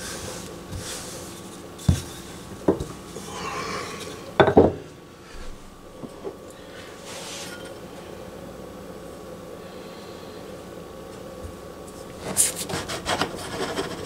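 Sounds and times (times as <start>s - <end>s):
rolling pin rubbing hiss: 0.0s - 2.4s, 7.0s - 7.6s.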